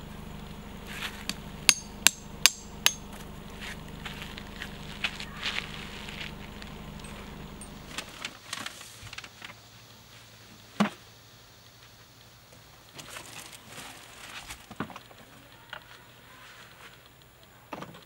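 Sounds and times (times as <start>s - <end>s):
gear knocking and rustling: 0.0s - 9.6s.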